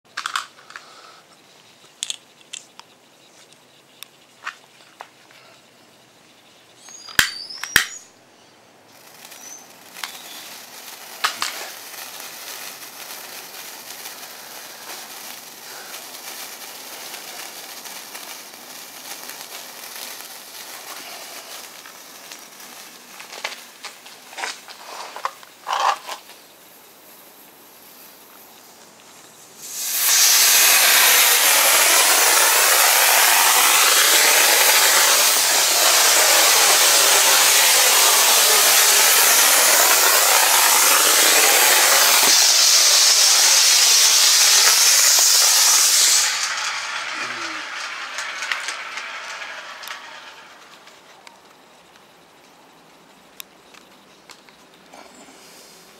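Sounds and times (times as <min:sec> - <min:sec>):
sharp pops: 0:06.9 - 0:08.0, 0:08.9 - 0:26.4, 0:28.2 - 0:51.6
rocket motor rushing hiss: 0:09.0 - 0:23.1, 0:29.4 - 0:51.2
fuse sputtering and crackling: 0:09.0 - 0:26.4, 0:28.3 - 0:52.0.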